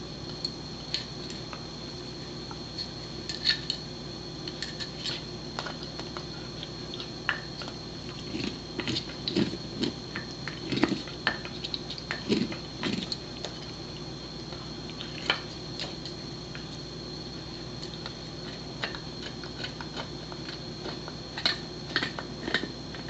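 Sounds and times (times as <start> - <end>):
dog gnawing antler: 4.6 - 13.8, 17.8 - 23.0.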